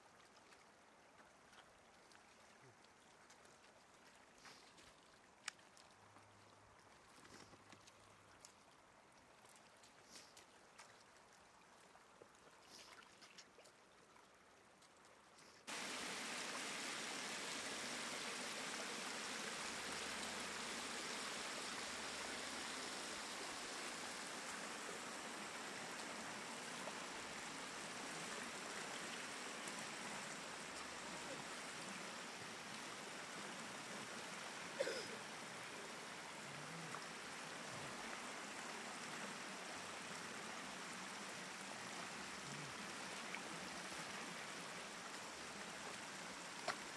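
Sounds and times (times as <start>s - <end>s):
small splashes in shallow water: 0.0s - 17.6s
water rushing over rocks: 15.7s - 46.9s.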